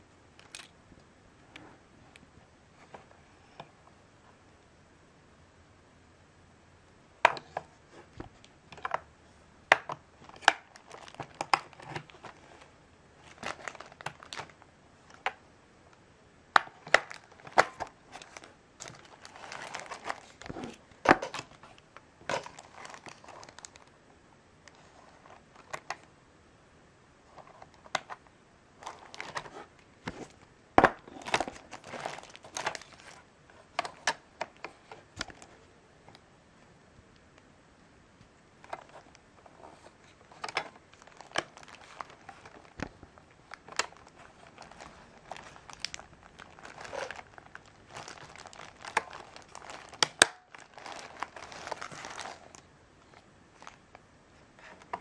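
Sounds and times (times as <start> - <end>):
packaging film crinkling: 9.7 - 15.4, 16.6 - 24.0, 28.8 - 35.5, 38.6 - 54.0.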